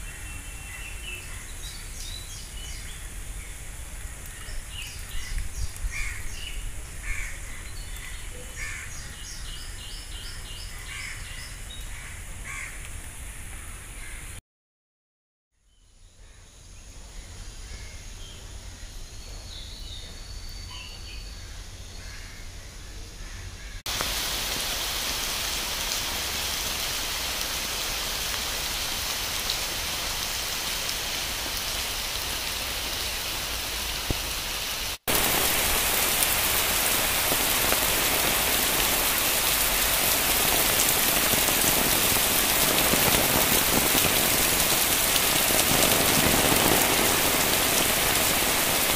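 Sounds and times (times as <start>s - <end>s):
heavy rain on pavement: 0.0s - 14.1s, 23.9s - 48.9s.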